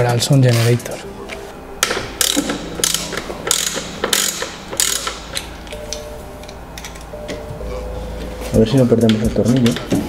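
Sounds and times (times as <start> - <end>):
ratchet wrench clicking: 2.2 - 5.5.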